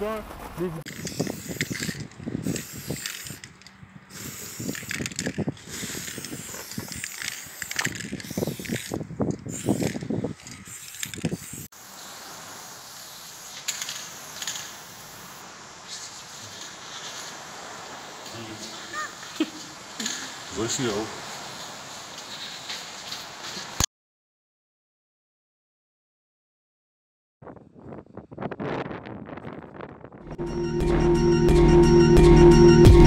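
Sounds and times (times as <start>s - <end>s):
spray paint can hissing: 0.9s - 17.5s.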